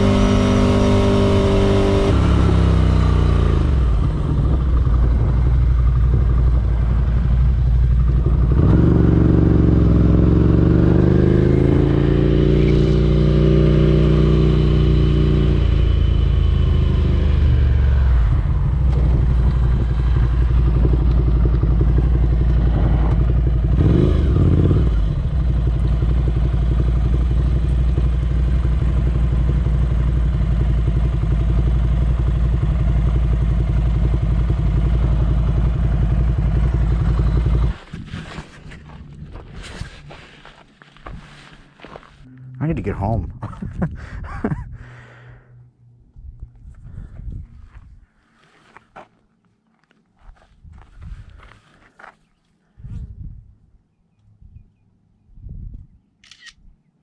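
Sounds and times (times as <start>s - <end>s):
motorcycle engine running: 0.0s - 41.2s.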